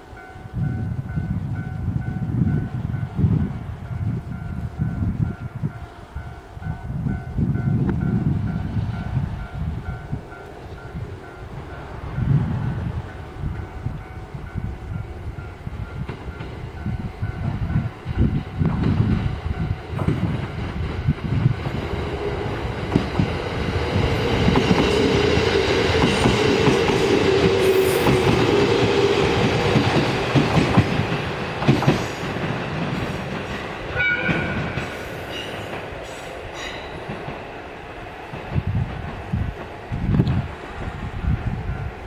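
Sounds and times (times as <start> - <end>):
train running hum: 0.0 - 42.0
train wheels clacking over rail joints: 15.9 - 37.4.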